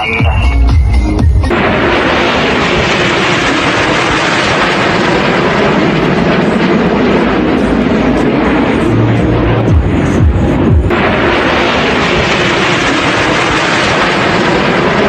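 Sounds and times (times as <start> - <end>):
music: 0.0 - 1.7, 8.9 - 11.0
jet engines flying past: 1.2 - 15.0.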